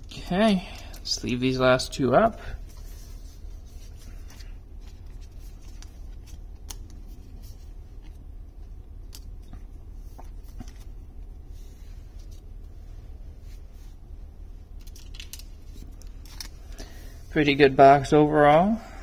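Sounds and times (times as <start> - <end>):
cards rustling: 0.5 - 14.0, 14.6 - 17.2
sharp ticks of card and plastic: 5.6 - 7.0, 9.0 - 9.6, 14.8 - 16.5.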